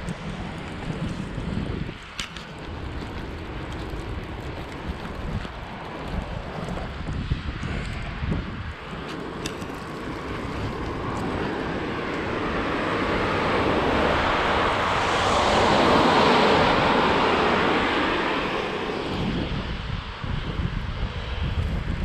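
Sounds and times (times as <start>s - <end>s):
wind rumble on microphone: 0.0s - 22.0s
tyres hissing on wet road: 8.7s - 20.2s.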